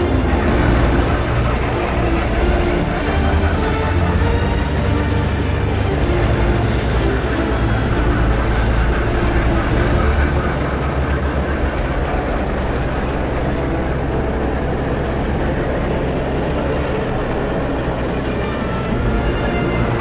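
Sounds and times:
train wheels rumbling on track: 0.0 - 20.0.

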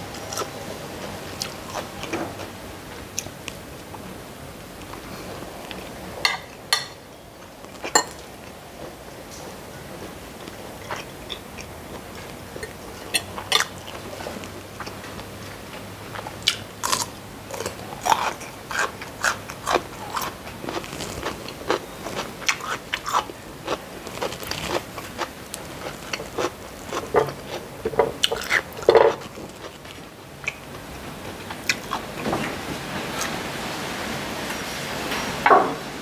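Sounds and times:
person chewing crisp food: 1.4 - 2.5, 10.8 - 30.8, 31.4 - 32.2.

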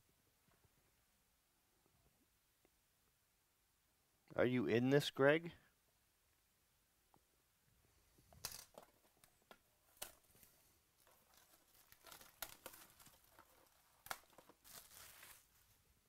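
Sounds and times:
plastic wrap tearing and crinkling: 8.4 - 15.8.

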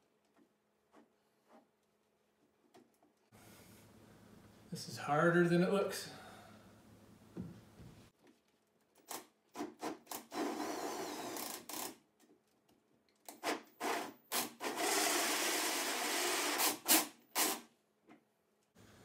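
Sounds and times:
drill hole saw scraping drywall: 9.6 - 11.9, 13.3 - 17.7.

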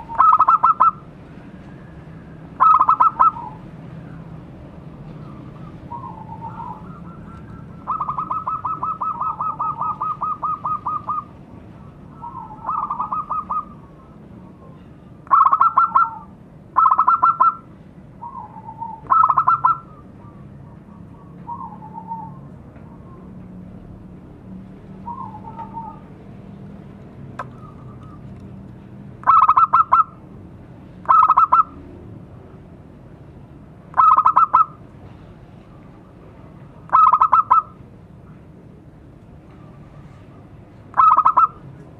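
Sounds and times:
dove cooing: 0.0 - 1.0, 2.6 - 3.6, 5.2 - 11.3, 12.1 - 17.6, 18.2 - 20.4, 25.0 - 26.1, 31.1 - 31.8, 34.0 - 34.7, 36.9 - 37.7, 41.0 - 41.6.

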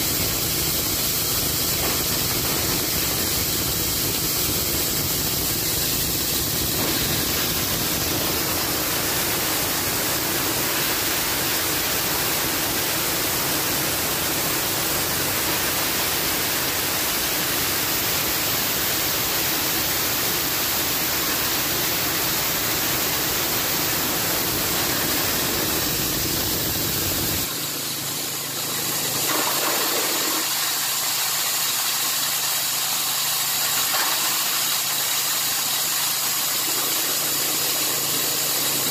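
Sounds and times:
fodder chopper running: 0.0 - 30.5.

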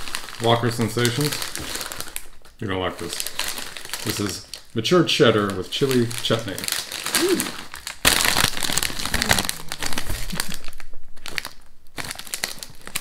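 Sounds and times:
crisp bag crinkling: 0.0 - 13.0.

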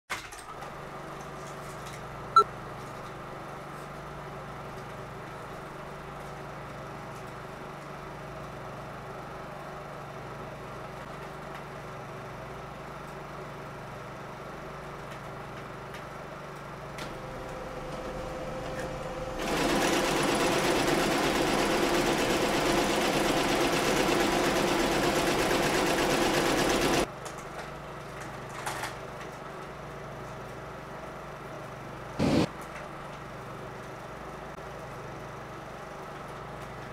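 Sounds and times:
film projector clattering: 18.8 - 27.1.

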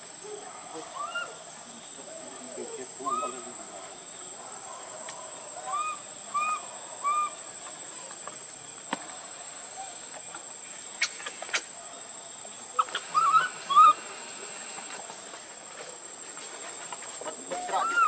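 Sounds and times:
baby monkey crying: 12.8 - 14.0.

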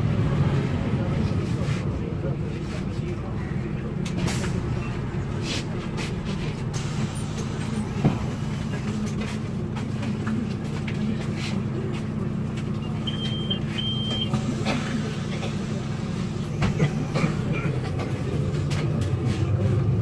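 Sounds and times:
bus engine drone: 0.0 - 20.0
rattles and clicks of bus fittings: 5.6 - 19.5
high electronic beep: 13.0 - 14.3.

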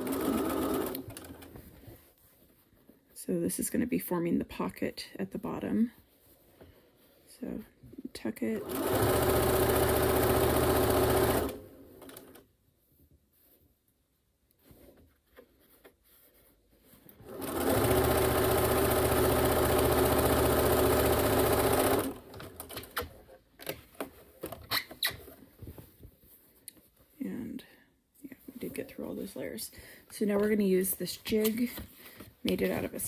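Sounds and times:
sewing machine stitching: 0.0 - 1.5, 8.6 - 12.4, 17.2 - 23.1.

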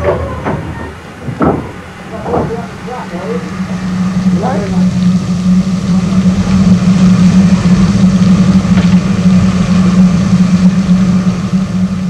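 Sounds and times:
even hiss: 0.0 - 12.0
loud low hum: 0.0 - 12.0.

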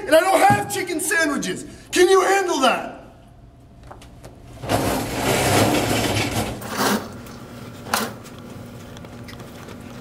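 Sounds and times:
chairs scraping and shuffling: 4.6 - 7.2.

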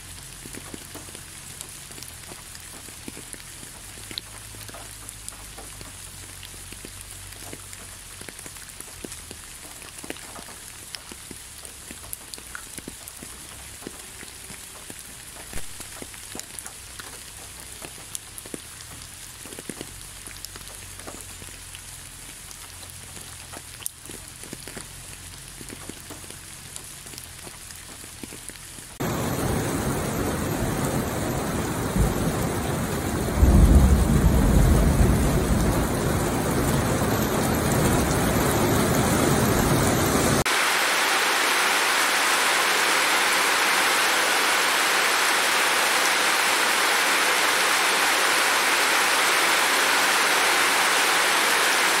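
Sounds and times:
rain falling: 0.0 - 52.0
low rumble of thunder: 29.1 - 39.9.

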